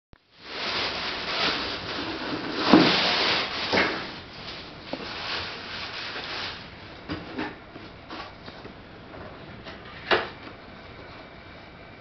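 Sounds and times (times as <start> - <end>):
fabric rustling: 4.3 - 6.7.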